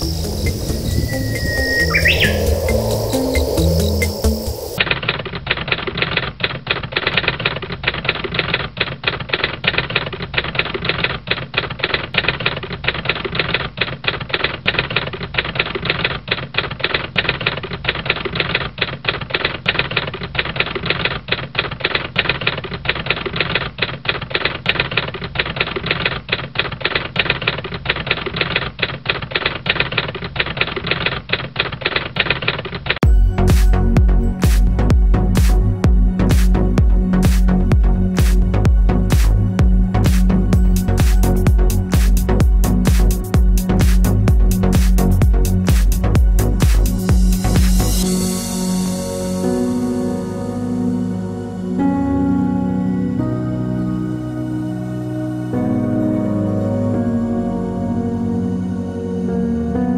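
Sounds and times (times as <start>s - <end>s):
electronic music: 0.0s - 4.8s, 33.0s - 59.9s.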